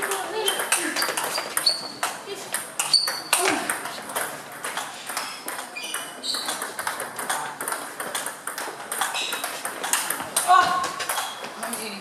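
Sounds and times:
table tennis ball clicking: 0.0s - 11.8s
short high squeaks: 1.6s - 2.0s, 2.8s - 3.4s, 5.3s - 6.6s.

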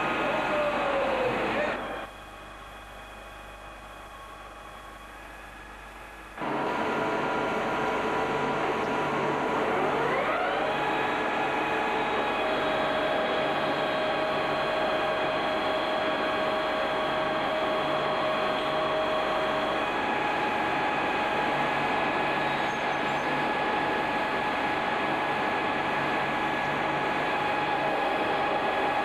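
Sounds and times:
metal lathe whining: 6.4s - 29.0s.

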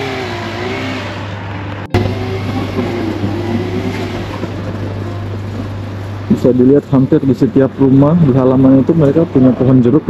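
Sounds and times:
faint wavering hum: 0.0s - 9.7s
low street rumble: 0.0s - 10.0s.

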